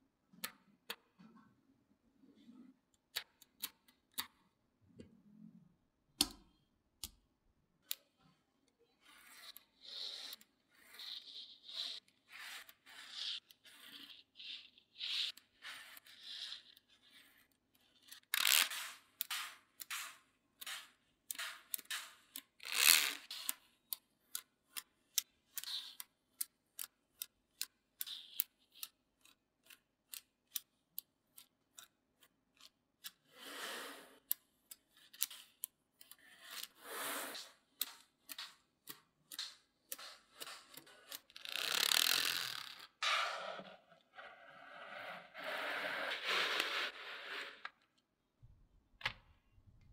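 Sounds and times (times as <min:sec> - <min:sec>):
magnetic balls clicking together: 0:37.4 - 0:42.9.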